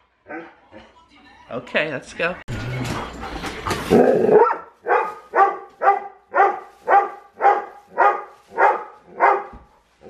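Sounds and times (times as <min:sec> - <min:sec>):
dog barking: 0:00.2 - 0:00.6, 0:04.1 - 0:09.7.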